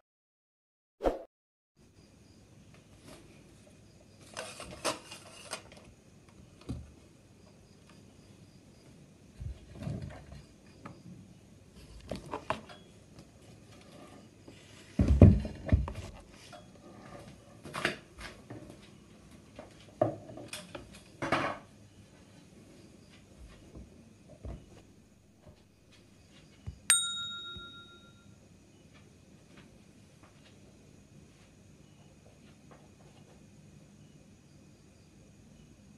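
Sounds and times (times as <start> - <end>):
thumps and rustles: 9.4 - 10.5, 14.8 - 16.4
bell-like ding: 26.9 - 28.3.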